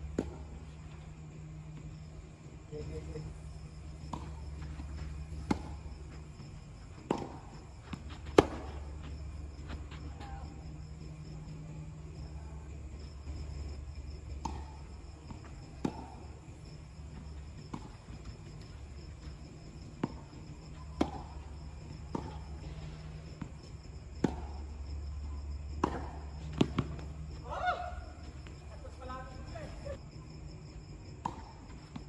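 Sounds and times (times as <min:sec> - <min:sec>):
ball bouncing on court: 0:04.0 - 0:10.5, 0:20.0 - 0:22.8, 0:25.8 - 0:27.6
tennis racket hitting ball: 0:06.9 - 0:08.9, 0:20.0 - 0:22.5, 0:25.8 - 0:27.1, 0:31.2 - 0:31.6.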